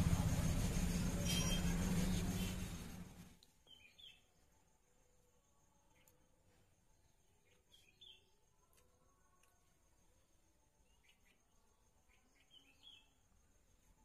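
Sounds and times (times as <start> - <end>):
loud steady noise with hum: 0.0 - 3.3
faint bird chirps: 0.0 - 14.0.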